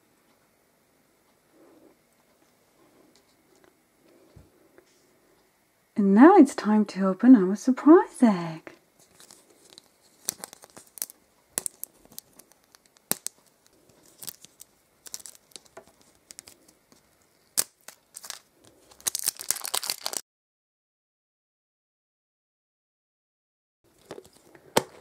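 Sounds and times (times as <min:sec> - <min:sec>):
wrapper crinkling and tearing: 0:09.0 - 0:20.2, 0:23.9 - 0:25.0.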